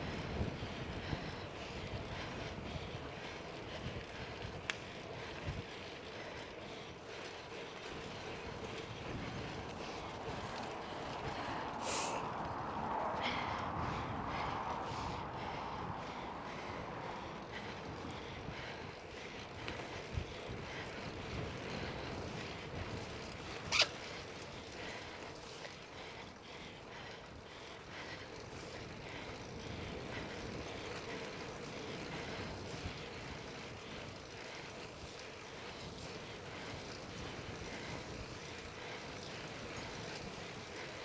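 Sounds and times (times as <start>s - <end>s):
tyres rushing on pavement: 0.1s - 41.0s.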